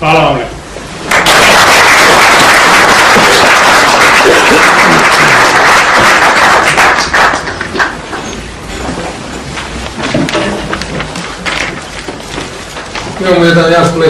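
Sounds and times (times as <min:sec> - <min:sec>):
audience applauding: 0:01.1 - 0:08.2.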